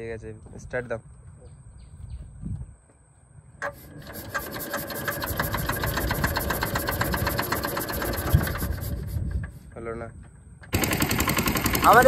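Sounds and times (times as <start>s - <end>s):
boat engine puttering: 3.6s - 9.6s, 10.7s - 12.0s.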